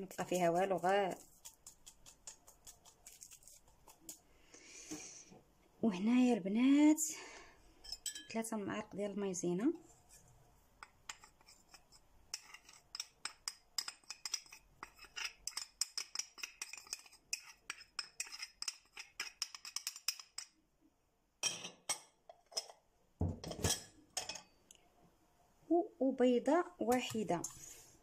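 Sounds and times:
metal spoon clinking in bowl: 7.8s - 8.4s.

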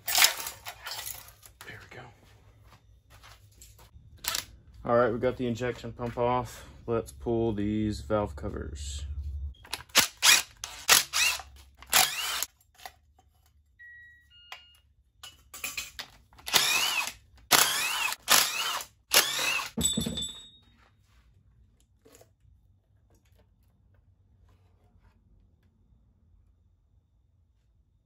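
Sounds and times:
power driver whirring: 9.6s - 12.5s, 16.4s - 19.8s.

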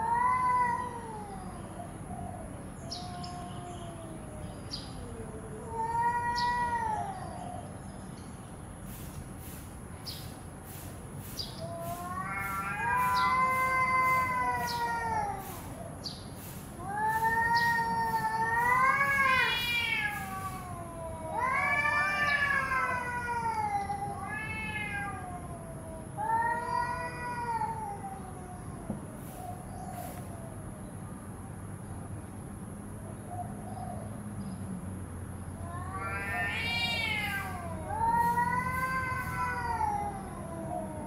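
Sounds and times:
cats yowling: 0.0s - 7.8s, 11.6s - 30.5s, 35.6s - 41.0s.

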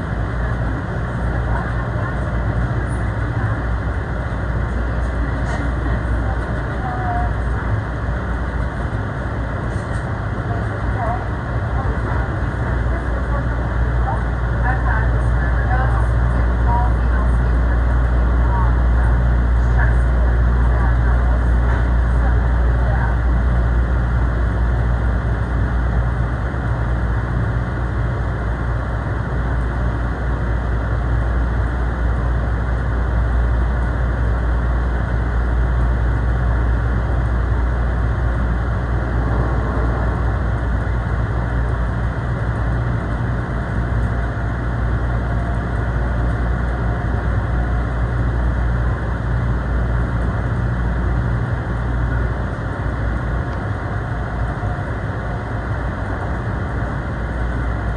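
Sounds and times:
train wheels rumbling on track: 0.0s - 57.9s.

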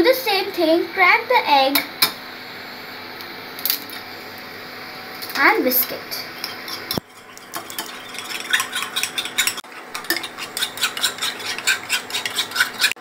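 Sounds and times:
spoon beating eggs in a bowl: 6.4s - 13.0s.

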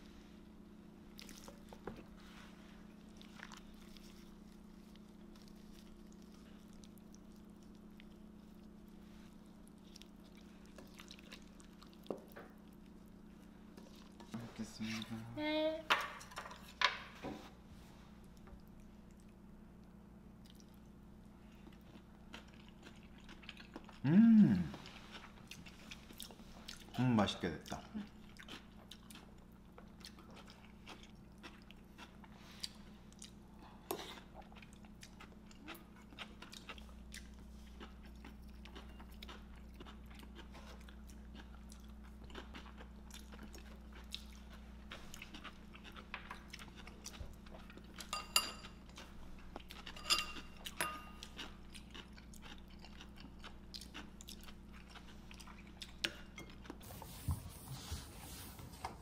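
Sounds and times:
low room hum: 0.0s - 59.0s
chewing crunchy food: 1.0s - 15.2s, 18.2s - 56.8s
tableware clinking: 48.1s - 48.8s, 49.9s - 51.2s.

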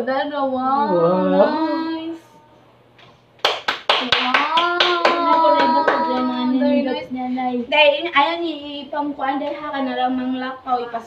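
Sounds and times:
voice with drawn-out pitches: 0.0s - 2.6s
sharp hand claps: 3.4s - 6.3s
woman talking: 4.0s - 11.0s.

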